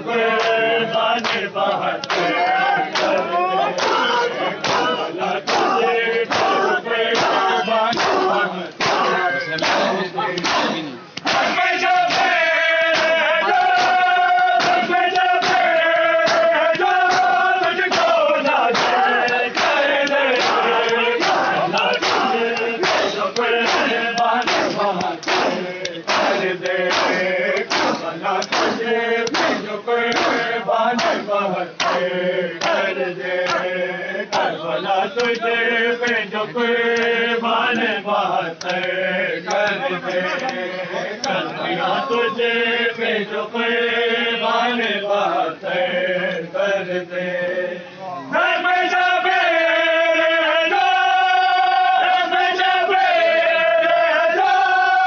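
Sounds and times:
men chanting together: 0:00.0 - 0:55.0
chest-beating slaps: 0:03.0 - 0:06.6, 0:07.2 - 0:15.7, 0:16.3 - 0:18.2, 0:18.8 - 0:32.8.

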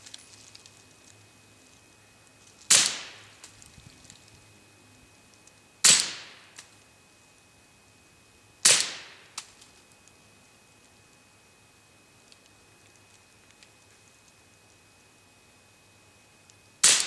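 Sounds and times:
suppressed pistol shots: 0:02.7 - 0:03.2, 0:05.8 - 0:06.4, 0:08.6 - 0:09.2.

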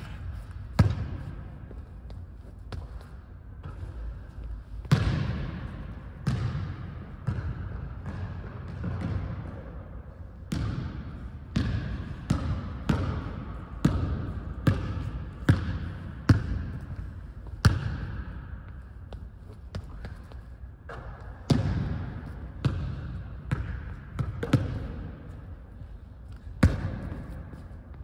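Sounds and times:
basketball bouncing on hardwood: 0:11.6 - 0:16.7, 0:20.9 - 0:25.1.

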